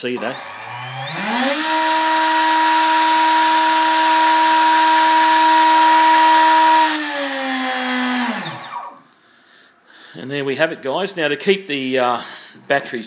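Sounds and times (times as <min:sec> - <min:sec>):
router spindle high whine: 0:00.0 - 0:09.0.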